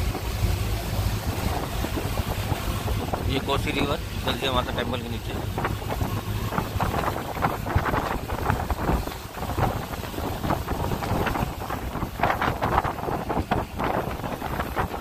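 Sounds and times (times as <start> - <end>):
vehicle engine and road noise: 0.0 - 15.0
wind buffeting microphone: 0.0 - 15.0.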